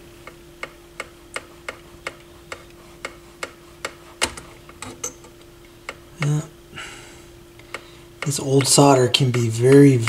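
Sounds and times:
faint steady hum: 0:00.0 - 0:10.0
mechanical ticking: 0:07.6 - 0:10.0.

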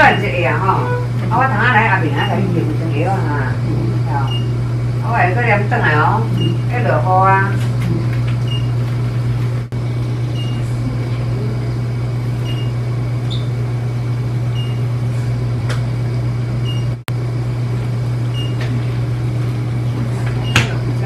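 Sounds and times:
oxygen concentrator humming: 0:00.0 - 0:21.0.

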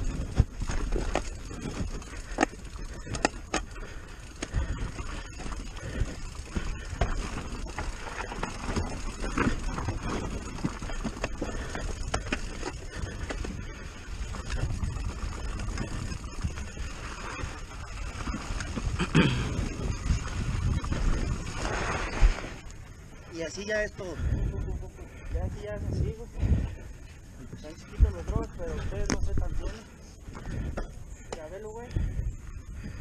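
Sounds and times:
bike knocks and rattles: 0:00.0 - 0:21.7
tyres crunching over dirt and stones: 0:00.0 - 0:22.8.

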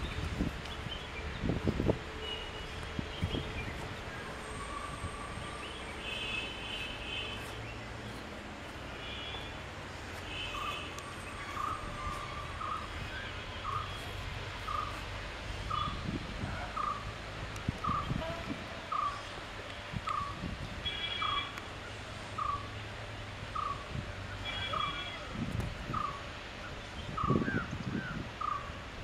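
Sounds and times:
birds calling: 0:00.0 - 0:17.2, 0:17.8 - 0:19.4, 0:20.0 - 0:22.7
steady low rumble: 0:00.0 - 0:20.8.

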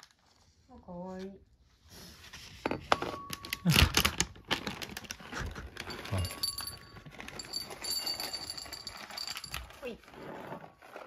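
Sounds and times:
cats chewing kibble: 0:04.5 - 0:11.0
kibble rattling into a bowl: 0:05.8 - 0:09.9.

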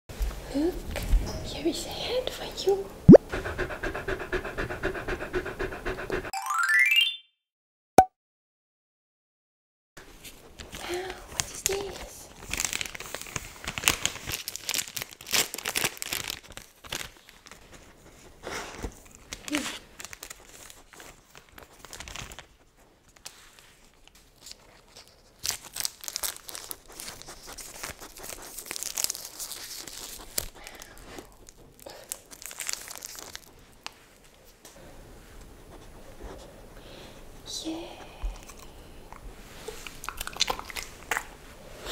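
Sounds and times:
plastic wrapper crinkling and tearing: 0:10.6 - 0:17.9, 0:18.8 - 0:34.3.

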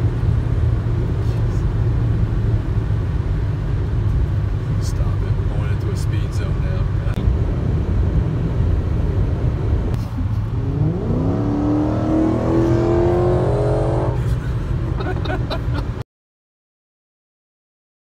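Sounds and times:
car exhaust accelerating: 0:00.0 - 0:16.0
road and wind rumble inside car: 0:00.0 - 0:16.0.

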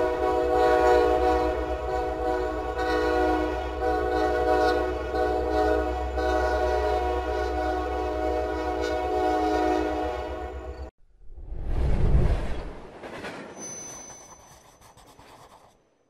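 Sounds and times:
locomotive air horn chord: 0:00.0 - 0:10.9
low train rumble: 0:00.0 - 0:14.2.

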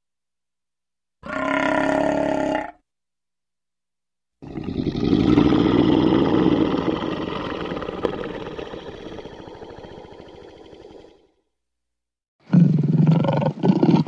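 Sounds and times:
lion rumbling vocalization: 0:04.4 - 0:11.3, 0:12.4 - 0:14.0.

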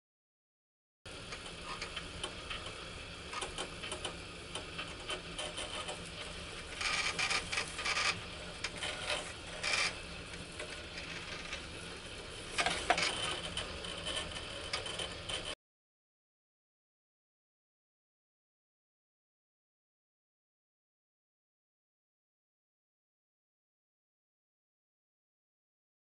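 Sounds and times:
steady low hum: 0:01.1 - 0:15.6.

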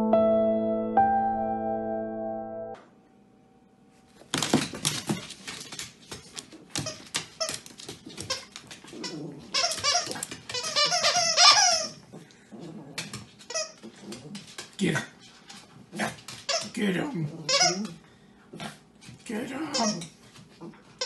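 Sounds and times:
dog claws clicking on floor: 0:04.2 - 0:11.8, 0:12.8 - 0:16.8.

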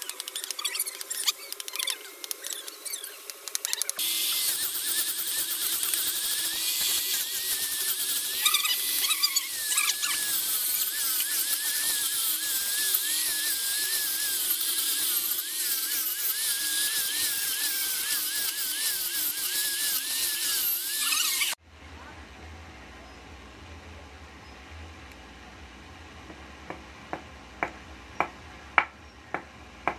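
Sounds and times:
angle grinder sanding wood: 0:04.0 - 0:21.6.

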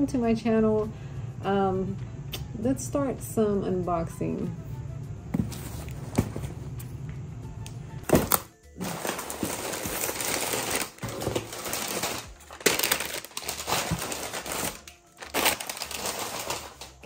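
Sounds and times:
cardboard box being opened: 0:05.4 - 0:06.6, 0:08.1 - 0:16.8
packing paper rustling: 0:08.1 - 0:17.0.

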